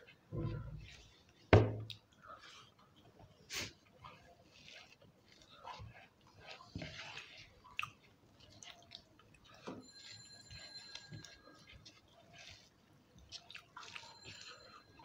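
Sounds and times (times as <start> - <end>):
chewing and lip smacks: 1.3 - 9.7, 10.6 - 15.0
fingers working soft rice: 3.5 - 8.7.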